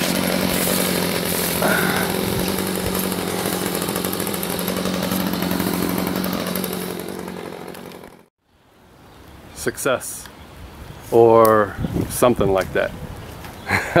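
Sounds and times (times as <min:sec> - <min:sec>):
chainsaw engine running: 0:00.0 - 0:08.3.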